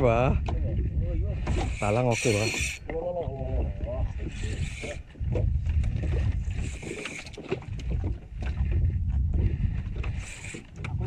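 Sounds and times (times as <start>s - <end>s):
wind buffeting microphone: 0.0s - 11.0s
fishing reel drag buzzing: 1.5s - 2.8s, 4.3s - 5.1s, 6.5s - 7.3s, 10.2s - 10.7s.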